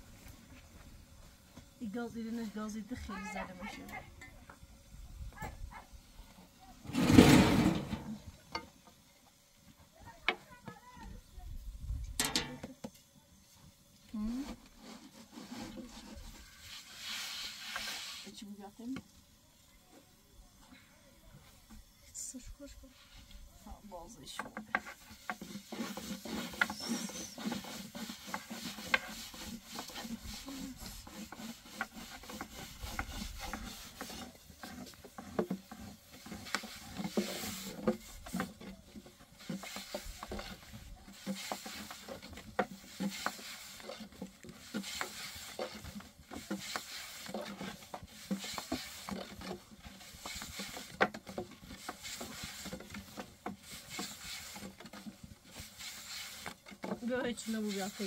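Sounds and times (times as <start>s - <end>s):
rolling pins rubbing on boards: 24.3s - 58.0s.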